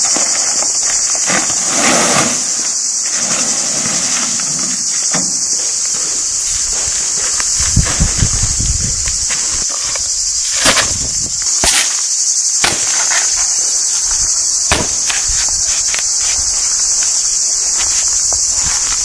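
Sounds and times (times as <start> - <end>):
insects chorus: 0.0 - 19.0
shovel scraping on gravel: 1.1 - 4.9.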